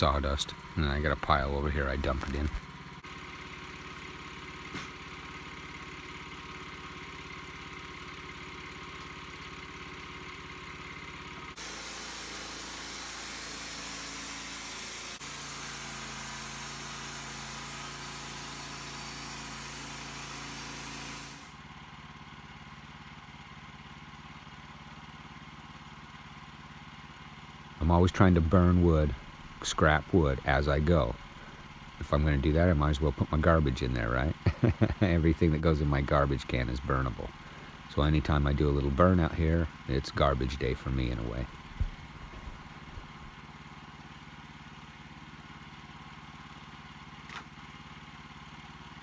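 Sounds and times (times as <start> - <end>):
band saw cutting log: 0.0 - 5.6, 11.4 - 21.6
sawmill engine running: 0.0 - 49.0.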